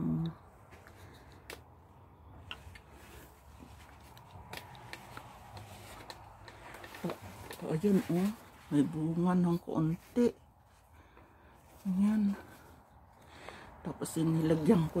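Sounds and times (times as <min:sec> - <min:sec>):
handling clicks and rustles: 0:02.3 - 0:08.8.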